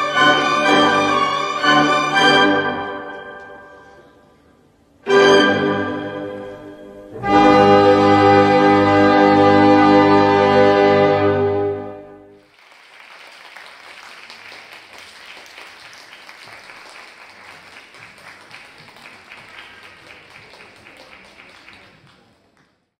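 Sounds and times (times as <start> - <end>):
brass solo held note: 5.1 - 12.4
audience applauding: 12.4 - 22.9.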